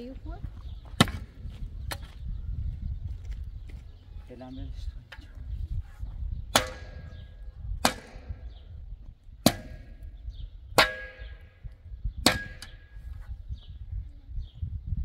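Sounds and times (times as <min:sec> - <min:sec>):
metal hoe striking stony soil: 0:09.4 - 0:10.0, 0:10.8 - 0:11.6, 0:12.2 - 0:13.0.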